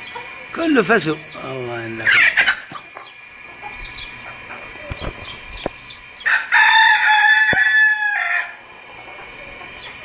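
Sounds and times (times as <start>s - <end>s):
chickens chirping: 0.0s - 10.0s
rooster crowing: 6.2s - 8.6s.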